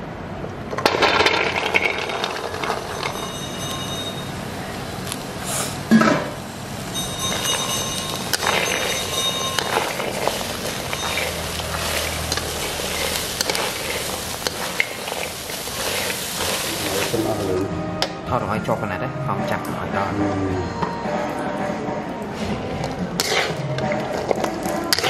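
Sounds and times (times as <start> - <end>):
vegetables tumbling in a wok: 0.7 - 4.2, 7.0 - 17.5, 22.4 - 25.0
spatula scraping and clinking on pan: 6.9 - 17.0, 22.7 - 25.0.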